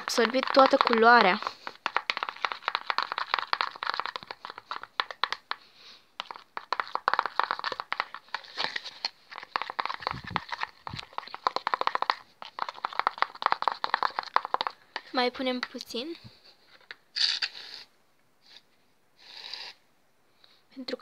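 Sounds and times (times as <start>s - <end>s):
slime crackling and popping: 0.0s - 5.6s, 6.2s - 14.8s.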